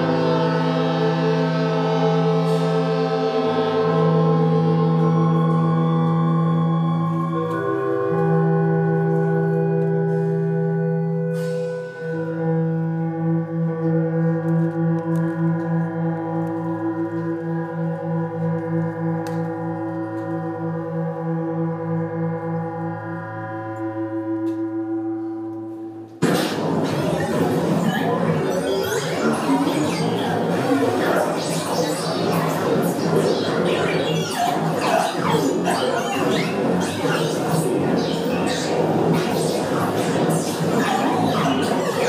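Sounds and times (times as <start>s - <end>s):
electronic drone music: 0.0s - 25.3s, 25.9s - 42.0s
loud burst of noise: 26.2s - 42.0s
low pulsing tone: 26.2s - 42.0s.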